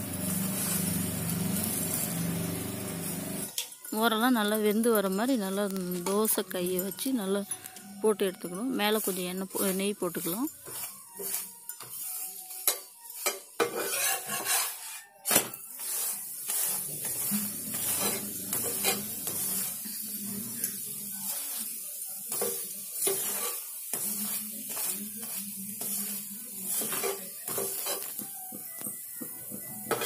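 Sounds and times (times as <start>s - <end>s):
flatbread sizzling in ghee: 0.0s - 30.0s
metal spatula scraping griddle: 9.0s - 28.3s.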